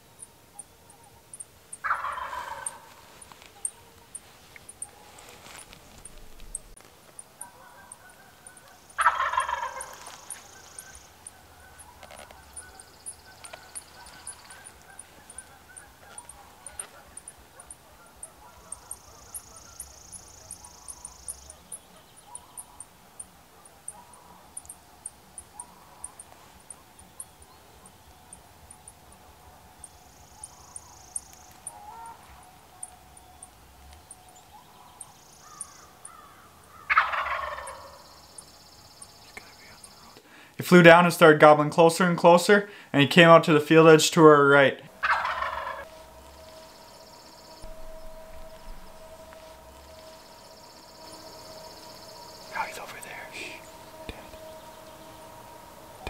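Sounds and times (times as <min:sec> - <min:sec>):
high-pitched chirping: 0:00.0 - 0:36.1, 0:44.9 - 0:56.0
turkey gobbling: 0:00.5 - 0:24.7, 0:31.6 - 0:32.5, 0:34.4 - 0:38.3, 0:44.2 - 0:56.0.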